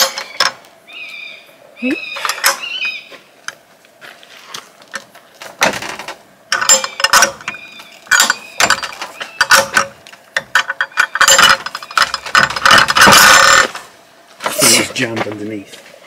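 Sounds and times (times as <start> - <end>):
wooden gate rattling and scraping: 0.0 - 0.7, 4.3 - 15.6.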